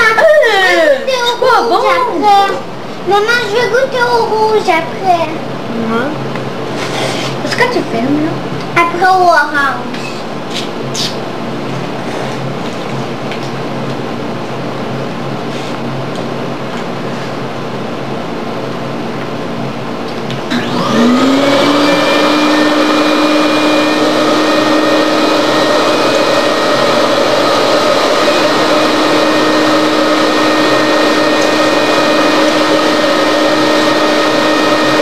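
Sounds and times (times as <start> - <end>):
steady hum: 0.0 - 35.0
electric motor whining: 20.4 - 35.0.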